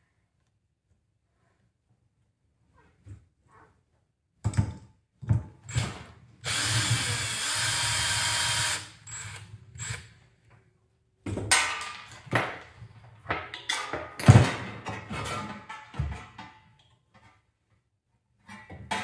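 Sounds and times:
power tool running: 0:05.7 - 0:10.0
metal knocks and clatter: 0:11.3 - 0:16.8.

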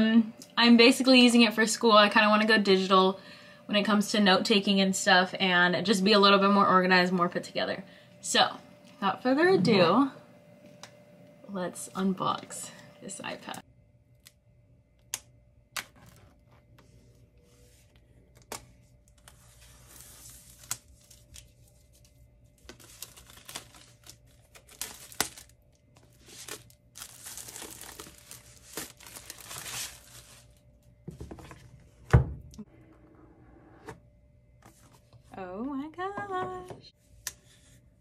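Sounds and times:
plastic wrap tearing and crinkling: 0:18.5 - 0:30.6.

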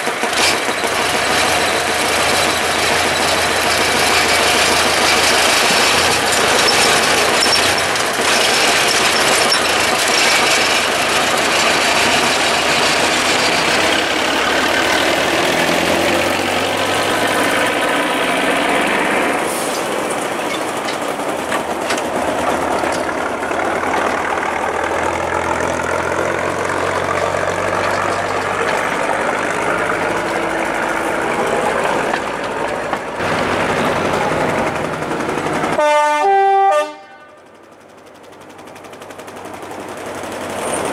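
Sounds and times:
diesel locomotive running: 0:00.0 - 0:40.9
train wheels rolling on rails: 0:00.0 - 0:40.9.

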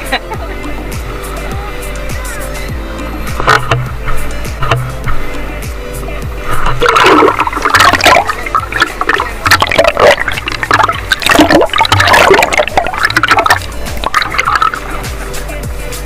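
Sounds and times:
seawater splashing and sloshing: 0:06.3 - 0:15.6
swimmer kicking up spray: 0:06.3 - 0:15.8.

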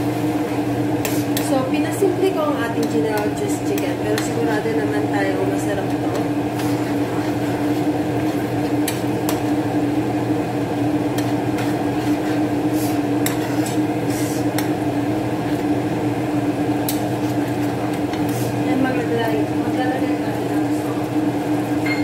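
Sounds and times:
steady hum: 0:00.0 - 0:22.0
metal spoon stirring in a pan: 0:00.9 - 0:15.7, 0:16.8 - 0:19.0
spoon scraping and tapping pan: 0:02.8 - 0:04.6, 0:13.2 - 0:13.8.

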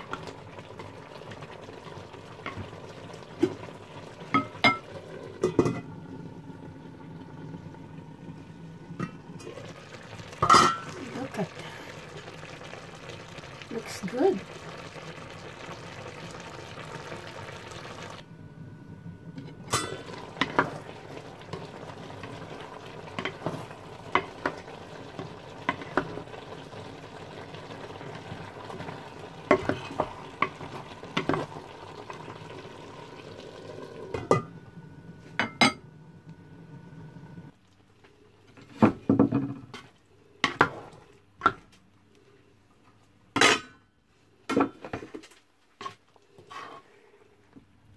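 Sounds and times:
vegetables simmering with hiss: 0:00.0 - 0:18.3, 0:18.9 - 0:43.0
spatula scraping a pan: 0:45.8 - 0:47.2.

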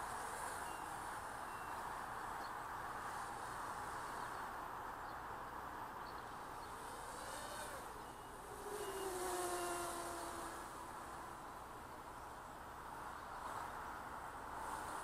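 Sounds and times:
drone motors whirring: 0:06.6 - 0:11.8.

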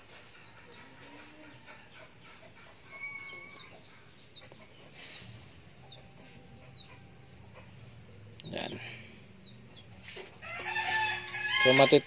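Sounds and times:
rustle of dry leaves: 0:00.0 - 0:01.6, 0:04.9 - 0:06.5, 0:09.9 - 0:12.0
birds chirping: 0:00.0 - 0:12.0.

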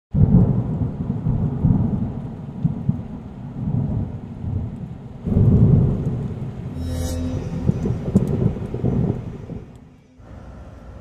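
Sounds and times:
rain: 0:00.1 - 0:06.7, 0:08.1 - 0:11.0
rolling thunder: 0:00.2 - 0:06.7, 0:07.6 - 0:09.8.

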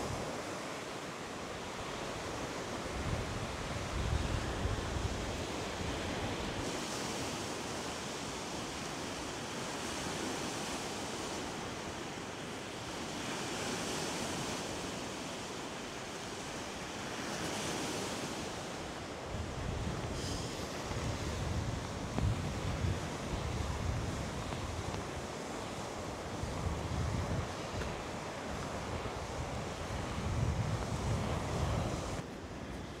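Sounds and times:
waves washing against rocky shore: 0:00.0 - 0:33.0
wind buffeting microphone: 0:01.8 - 0:06.7, 0:18.9 - 0:33.0.

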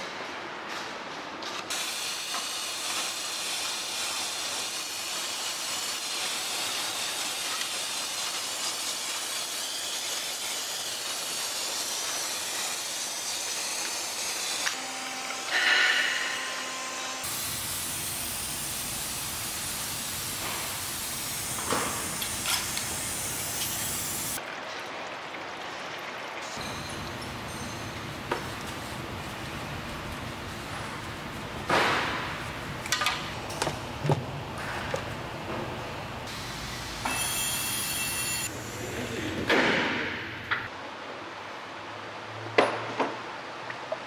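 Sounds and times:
steady hissing: 0:17.2 - 0:24.4.

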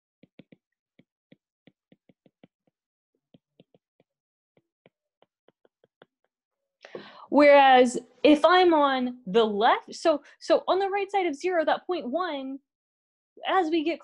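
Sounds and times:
stylus tapping tablet screen: 0:00.2 - 0:06.4.

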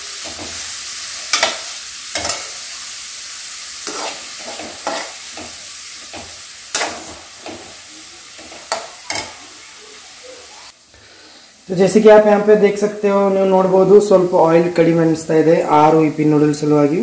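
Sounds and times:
spoon stirring and scraping pan: 0:00.0 - 0:09.7
onions sizzling in oil: 0:00.0 - 0:17.0.

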